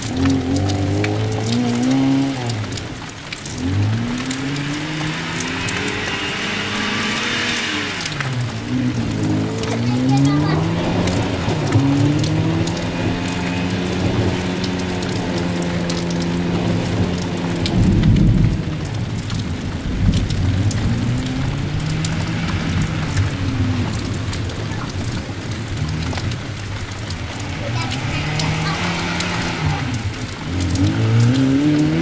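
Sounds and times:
crackles: 0:00.0 - 0:32.0
rally car engine revving: 0:00.0 - 0:32.0
rushing noise: 0:03.6 - 0:09.6.

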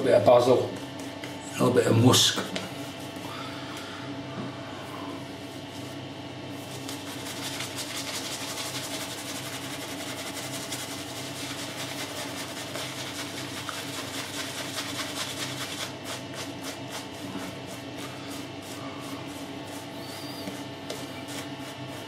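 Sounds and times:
steady low hum: 0:00.0 - 0:22.0
shaving brush scratching: 0:06.6 - 0:22.0.

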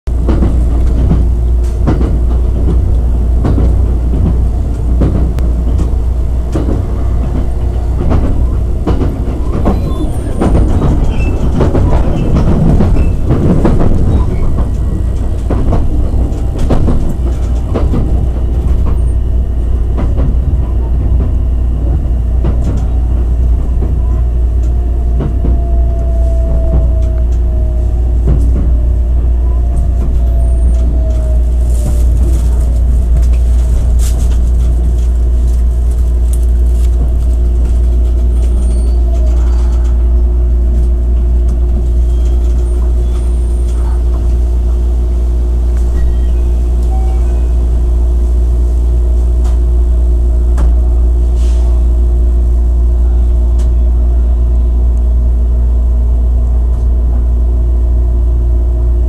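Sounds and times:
train cabin low rumble: 0:00.0 - 0:59.0
wheels clicking over rail joints: 0:00.1 - 0:45.1.

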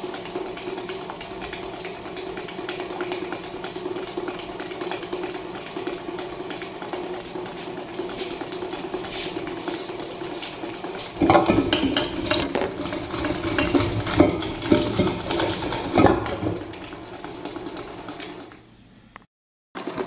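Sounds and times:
stand mixer motor humming: 0:00.0 - 0:18.6
metallic clattering of steel bowl: 0:11.2 - 0:18.2.

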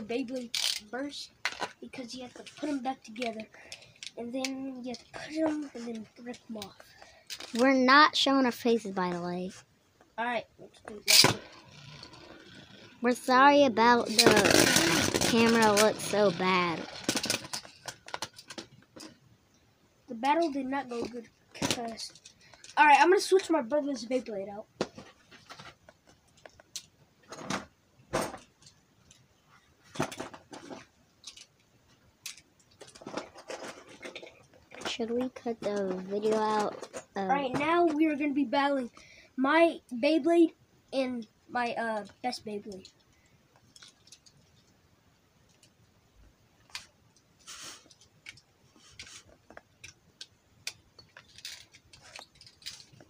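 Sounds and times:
spinning top clicks and rattles: 0:00.3 - 0:01.7, 0:13.5 - 0:19.1.

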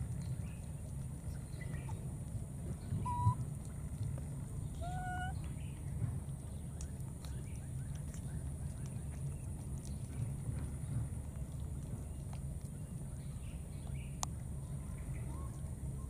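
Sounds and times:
steady low rumble: 0:00.0 - 0:16.0
baby monkeys coo calls: 0:02.9 - 0:03.4, 0:04.7 - 0:05.5.

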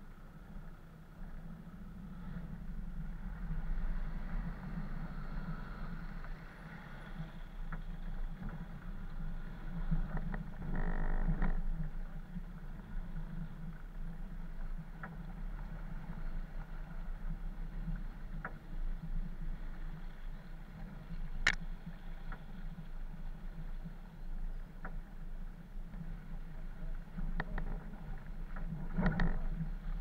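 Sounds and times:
off-road vehicle engine drone: 0:00.0 - 0:30.0.

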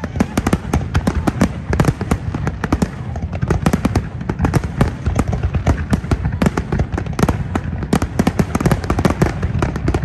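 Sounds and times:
fireworks bangs: 0:00.0 - 0:10.0.

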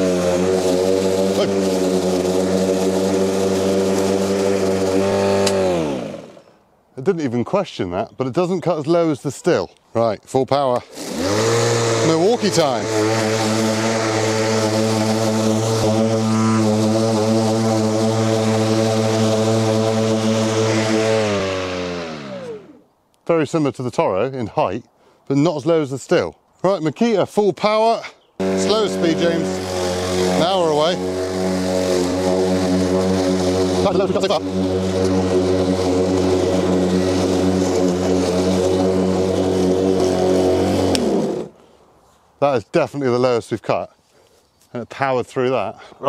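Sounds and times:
electric lawn mower humming: 0:00.0 - 0:06.5, 0:10.9 - 0:22.8, 0:28.4 - 0:41.6.

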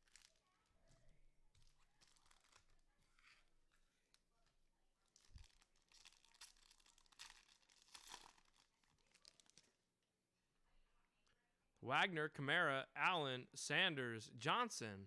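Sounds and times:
wrappers crinkling and tearing: 0:00.0 - 0:00.4, 0:01.5 - 0:03.3, 0:05.1 - 0:09.8.

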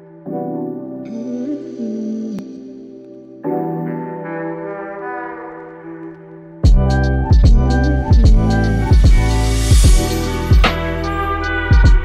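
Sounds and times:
steady kick drum beat: 0:06.6 - 0:11.1, 0:11.7 - 0:12.0.

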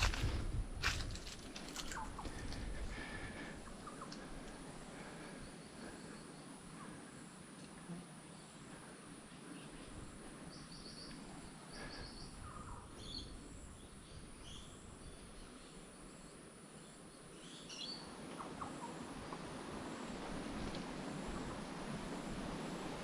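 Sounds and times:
bird calls: 0:01.7 - 0:07.1, 0:09.5 - 0:16.0, 0:16.8 - 0:19.7.

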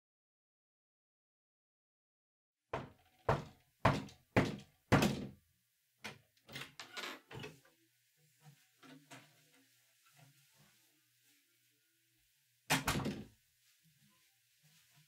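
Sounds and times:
knocks on wooden door: 0:02.8 - 0:05.4.

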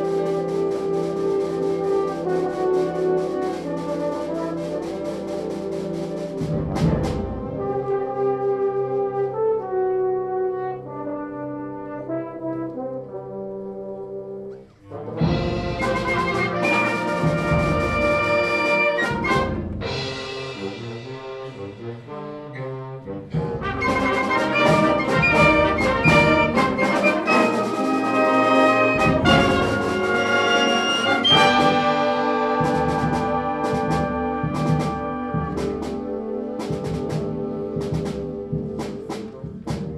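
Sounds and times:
concert band playing loudly: 0:15.2 - 0:22.2, 0:23.4 - 0:39.9
percussion strikes: 0:15.2 - 0:22.5, 0:23.3 - 0:39.9.

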